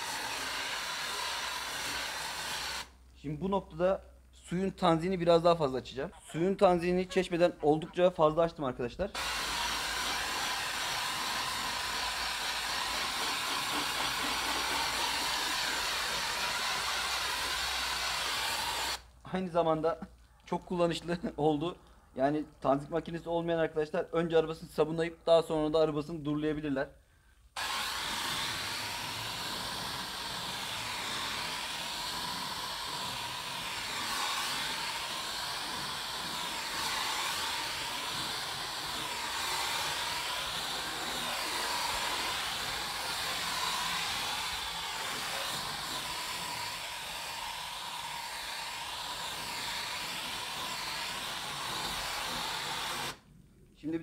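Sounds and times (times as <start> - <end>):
hose water spray hissing on car: 0.0 - 2.9, 9.2 - 19.0, 27.6 - 53.2.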